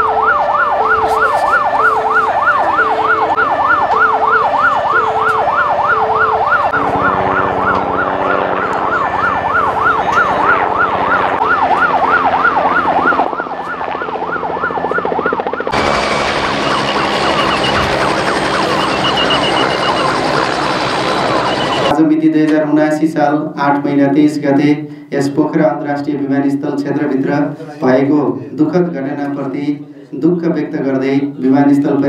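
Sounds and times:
emergency siren yelping: 0.0s - 22.0s.

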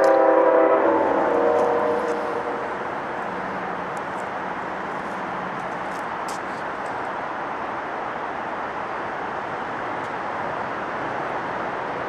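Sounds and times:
train rumbling on tracks: 0.0s - 12.0s.

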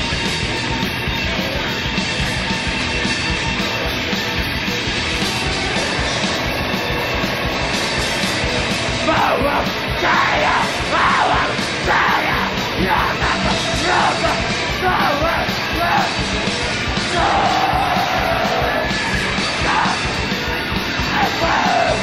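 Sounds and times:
distorted hardcore punk band: 0.0s - 22.0s
harsh noise: 0.0s - 22.0s
shouted vocals: 9.0s - 16.2s, 16.9s - 20.2s, 21.0s - 22.0s.

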